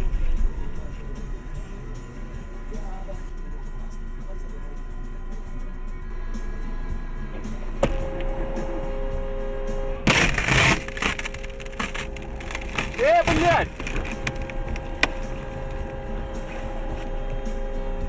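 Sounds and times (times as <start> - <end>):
car crash: 10.0 - 15.5
crunching and rattling: 10.1 - 17.1.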